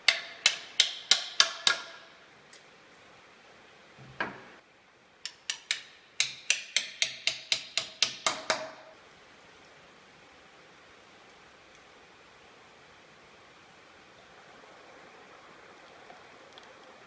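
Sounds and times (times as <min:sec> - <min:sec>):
hammer tapping wood: 0:00.0 - 0:02.0, 0:05.3 - 0:08.8.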